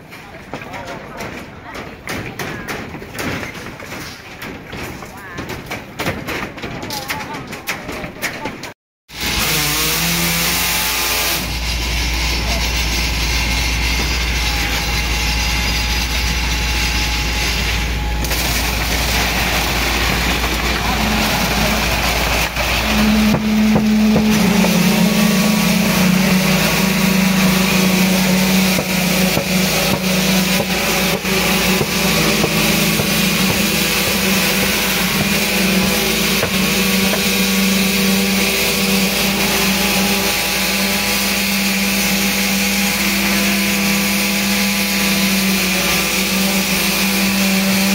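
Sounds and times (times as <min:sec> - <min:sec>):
pump engine rumbling: 0:06.7 - 0:47.9
concrete vibrator motor humming: 0:10.0 - 0:47.9.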